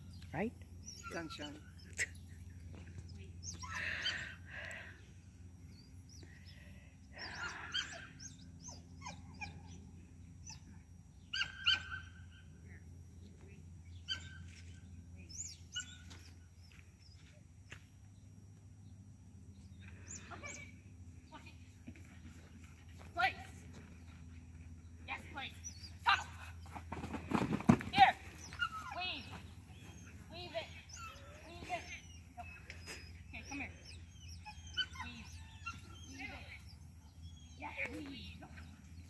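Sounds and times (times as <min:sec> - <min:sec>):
birds chirping and calling: 0:00.0 - 0:04.8, 0:05.7 - 0:09.8, 0:28.3 - 0:39.0
low background hum: 0:00.0 - 0:39.0.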